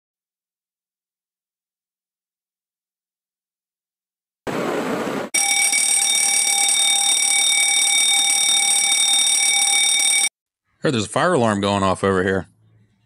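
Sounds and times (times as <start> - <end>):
fire alarm shrill tone: 5.4 - 10.3.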